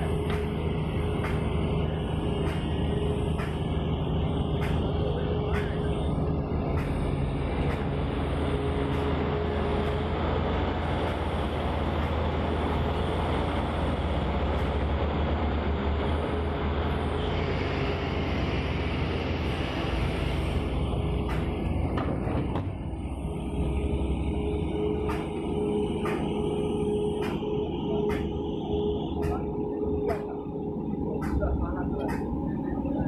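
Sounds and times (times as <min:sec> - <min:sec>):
excavator diesel engine running: 0:00.0 - 0:33.0.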